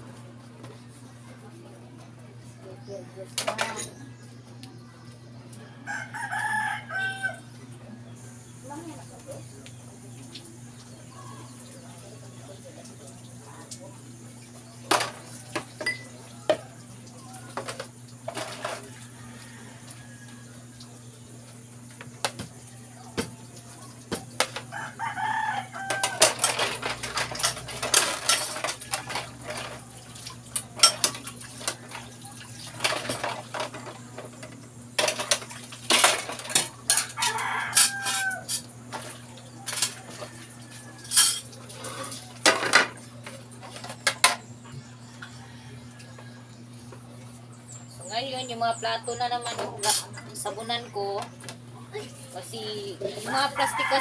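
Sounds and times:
plates and cutlery clinking: 0:03.4 - 0:04.0, 0:14.9 - 0:16.7, 0:17.5 - 0:19.0, 0:25.8 - 0:29.9, 0:30.5 - 0:32.1, 0:32.7 - 0:44.4
rooster crowing: 0:05.5 - 0:07.6, 0:18.5 - 0:20.8, 0:24.5 - 0:27.0, 0:36.8 - 0:38.6, 0:39.7 - 0:41.4, 0:44.8 - 0:46.6, 0:53.2 - 0:54.0.

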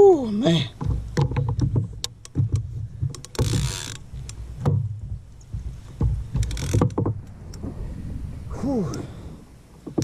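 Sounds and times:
gear knocking on plastic kayak: 0:00.8 - 0:07.3, 0:09.8 - 0:10.0.

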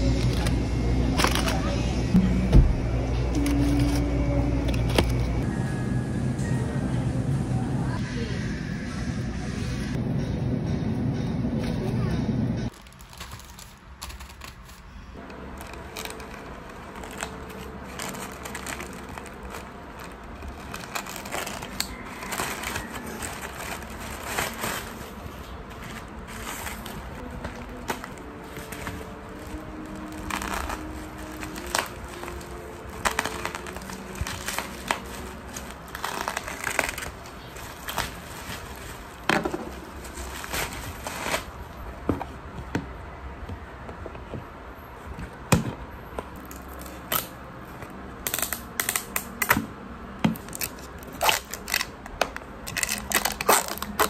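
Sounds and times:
crinkling and rustling: 0:00.0 - 0:01.8, 0:12.7 - 0:42.7, 0:50.3 - 0:54.0.

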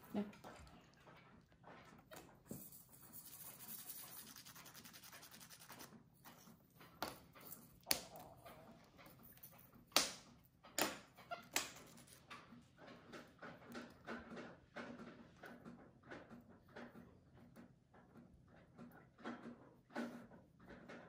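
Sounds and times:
nail file rasping: 0:03.2 - 0:05.9.

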